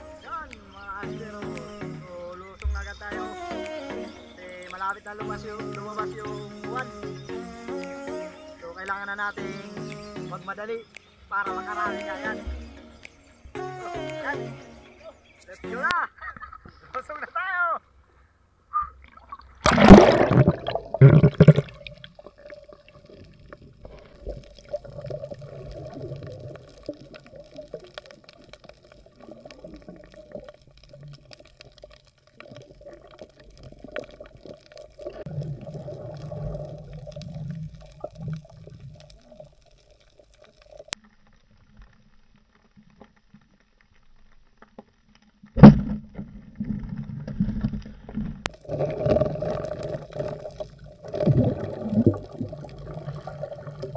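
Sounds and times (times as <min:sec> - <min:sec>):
muffled underwater water noise: 0:00.0 - 0:17.3, 0:17.9 - 0:53.9
water splash and rush: 0:19.1 - 0:41.0, 0:45.6 - 0:53.9.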